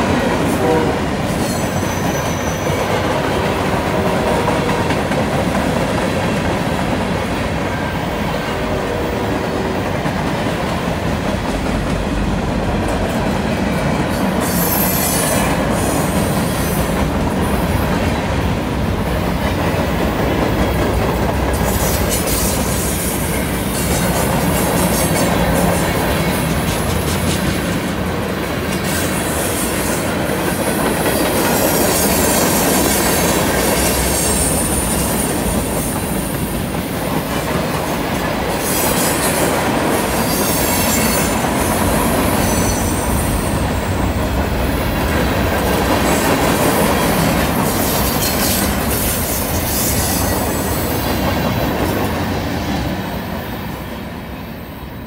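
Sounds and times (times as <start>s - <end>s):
train wheels rumbling on rail: 0.0s - 55.0s
high-pitched wheel squeal: 14.4s - 15.4s.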